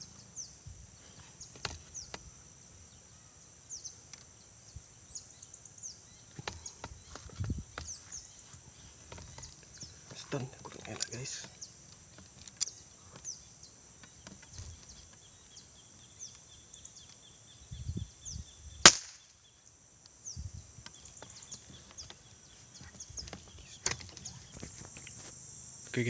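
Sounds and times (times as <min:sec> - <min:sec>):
high insect drone: 0:00.0 - 0:26.0
air rifle shot: 0:18.8 - 0:19.3.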